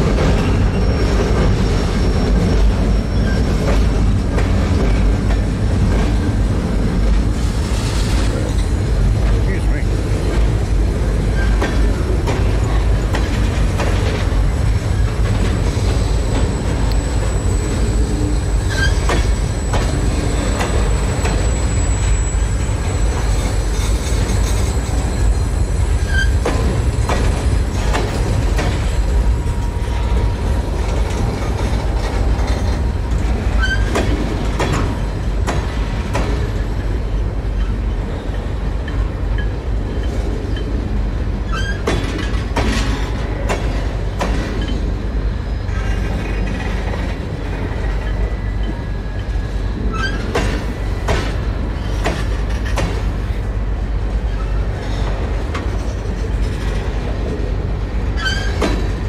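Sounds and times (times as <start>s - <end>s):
freight train rumbling past: 0.0s - 59.0s
train wheel clicks and clanks: 0.0s - 59.0s
high wheel squeal: 0.3s - 4.1s, 14.9s - 26.8s, 33.4s - 34.2s, 41.4s - 42.3s, 47.8s - 50.4s, 58.2s - 58.8s
short wheel squeaks: 16.3s - 26.6s, 33.5s - 34.1s, 41.5s - 42.3s, 58.2s - 58.8s.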